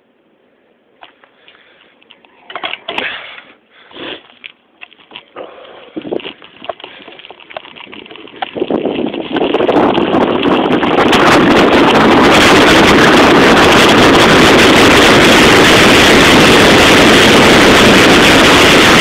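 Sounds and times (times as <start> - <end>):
bicycle rattling over gravel: 4.1 - 19.0
wind rushing over microphone: 5.8 - 19.0.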